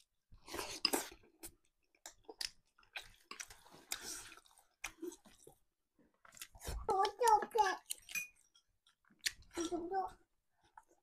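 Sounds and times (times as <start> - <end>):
close-up chewing of food: 0.0 - 6.9.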